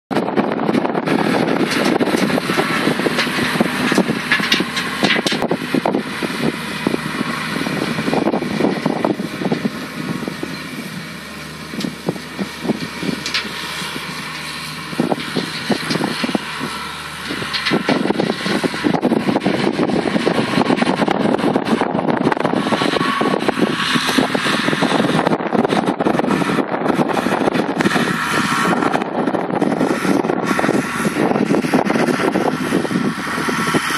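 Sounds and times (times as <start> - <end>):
tractor diesel engine under load: 0.1 - 33.9.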